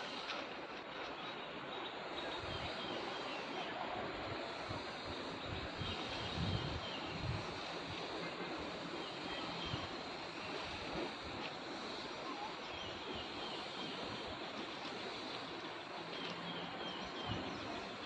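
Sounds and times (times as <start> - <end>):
outdoor background hiss: 0.0 - 18.0.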